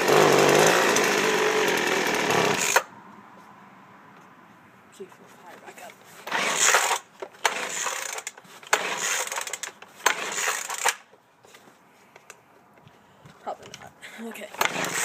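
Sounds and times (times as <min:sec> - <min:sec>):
recoil starter pulls: 0:06.2 - 0:11.0, 0:14.6 - 0:15.0.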